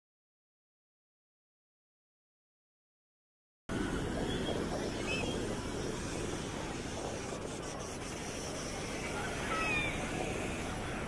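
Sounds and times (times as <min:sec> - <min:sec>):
gentle surf: 0:03.7 - 0:11.0
wind on microphone: 0:03.7 - 0:11.0.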